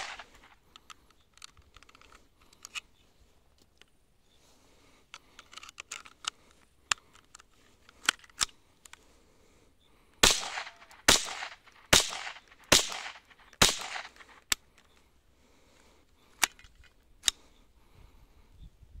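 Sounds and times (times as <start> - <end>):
rifle shots with echo: 0.0 - 0.5, 10.2 - 14.3.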